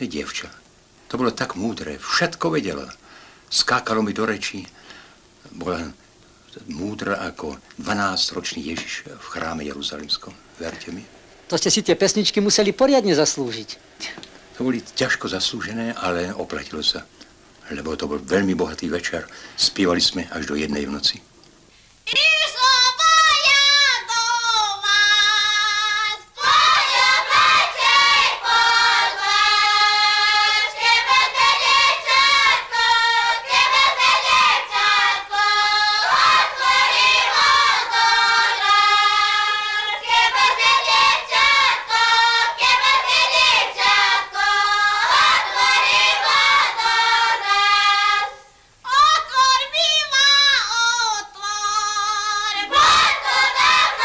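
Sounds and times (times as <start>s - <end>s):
women singing a folk song: 22.0s - 54.0s.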